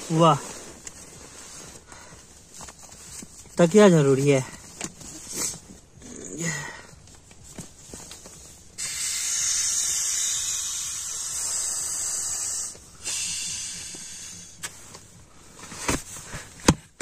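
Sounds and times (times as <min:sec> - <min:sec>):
air blown into inflatable pillow: 0:08.8 - 0:15.0.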